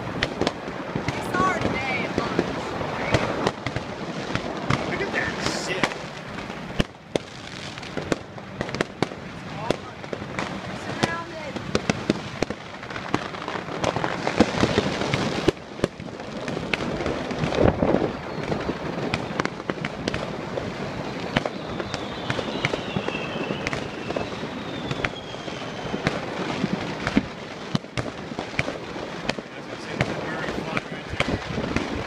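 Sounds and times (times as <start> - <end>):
fireworks crackling and banging: 0.0 - 32.0
firework whistle falling in pitch: 21.4 - 26.1.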